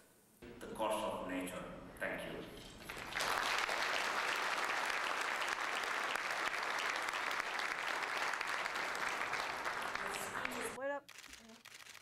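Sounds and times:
audience applauding: 0:02.9 - 0:10.8.

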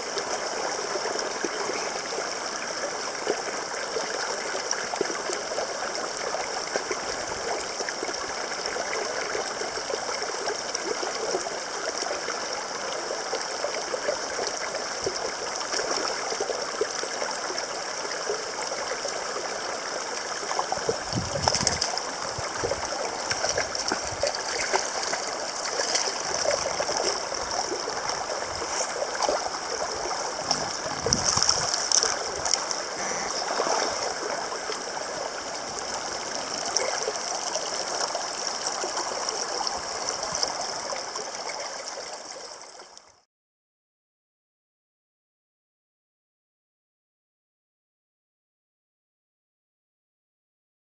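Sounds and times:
mountain stream rushing: 0:00.0 - 0:42.6
fish splashing at surface: 0:30.4 - 0:32.7.

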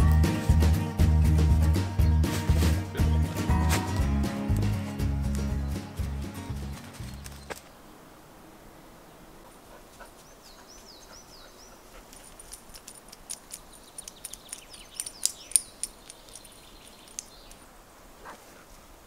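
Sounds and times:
bird chirps and ticks: 0:10.0 - 0:17.7
birds whistling: 0:13.6 - 0:17.6.

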